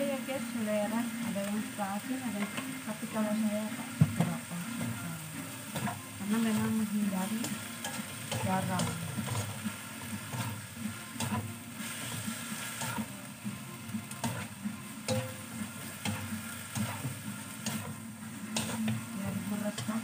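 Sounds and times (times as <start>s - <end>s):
noodles sizzling in a wok: 0.0s - 20.0s
spatula scraping a pan: 5.7s - 13.1s, 14.1s - 20.0s.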